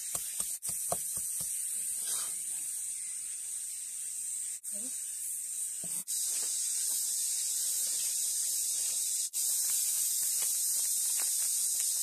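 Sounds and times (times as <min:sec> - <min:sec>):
steady high hiss: 0:00.0 - 0:12.0
seeds and salt falling into bowl: 0:07.8 - 0:12.0.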